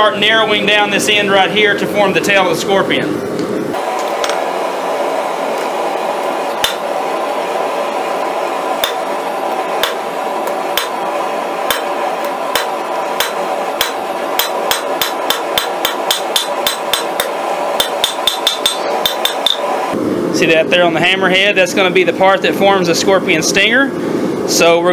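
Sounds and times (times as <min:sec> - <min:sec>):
steady hum: 0:00.0 - 0:24.9
hammer striking hot steel: 0:03.8 - 0:04.4, 0:06.6 - 0:07.0, 0:08.8 - 0:19.8
anvil ringing: 0:17.8 - 0:19.6.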